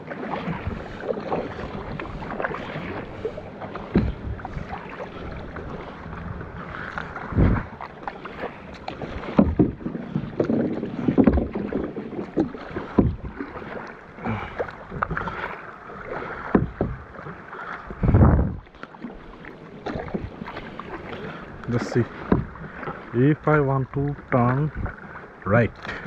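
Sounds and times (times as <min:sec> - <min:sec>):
kayak paddle splashing: 0:00.0 - 0:26.0
heavy low thud: 0:03.9 - 0:04.4, 0:18.0 - 0:18.6.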